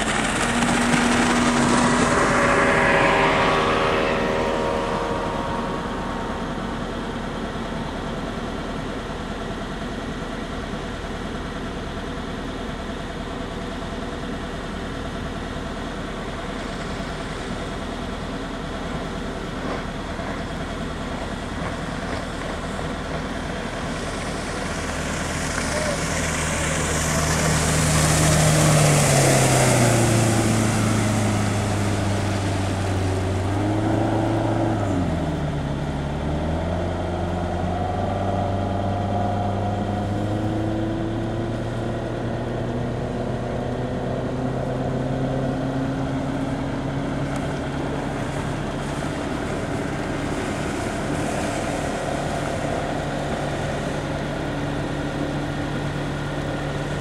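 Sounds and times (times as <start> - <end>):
boat engine running at speed: 0.0 - 57.0
water hissing off hull: 10.8 - 43.4, 44.0 - 57.0.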